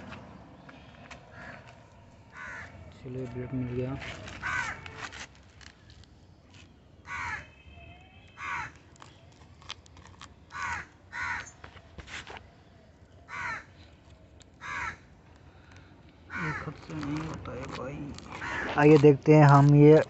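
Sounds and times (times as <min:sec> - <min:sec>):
crow cawing: 0:00.7 - 0:05.1, 0:07.0 - 0:07.6, 0:08.3 - 0:08.8, 0:10.5 - 0:11.6, 0:13.3 - 0:13.8, 0:14.6 - 0:16.8, 0:18.4 - 0:18.9.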